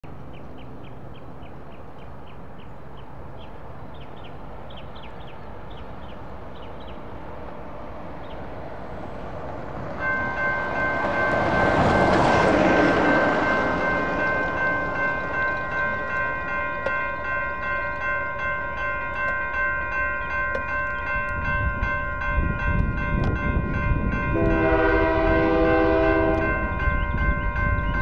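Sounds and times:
railroad crossing bell ringing: 0:03.2 - 0:28.0.

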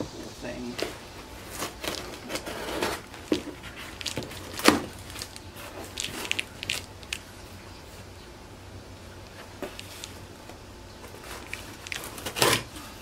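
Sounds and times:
packing tape ripping: 0:01.4 - 0:07.3, 0:11.1 - 0:12.7
scissors cutting packing tape: 0:11.3 - 0:12.7.

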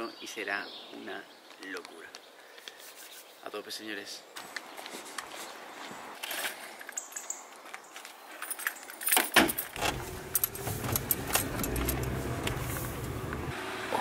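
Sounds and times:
keys jangling: 0:08.4 - 0:12.3
car engine and road rumble: 0:09.3 - 0:14.0.

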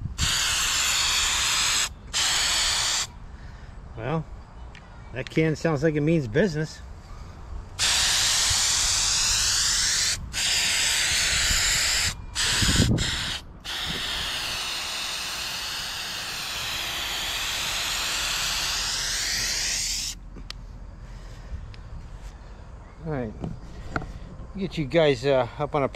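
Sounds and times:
aerosol can spraying hiss: 0:00.2 - 0:03.1, 0:07.8 - 0:20.2.

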